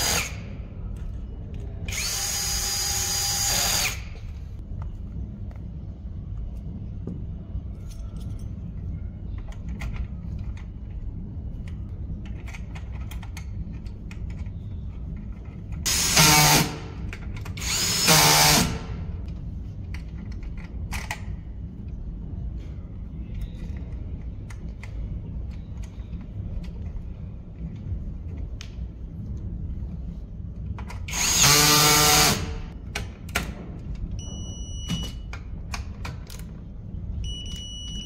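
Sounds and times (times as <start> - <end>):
drill driving screw into metal: 15.9 - 16.8, 17.6 - 18.8, 31.1 - 32.6.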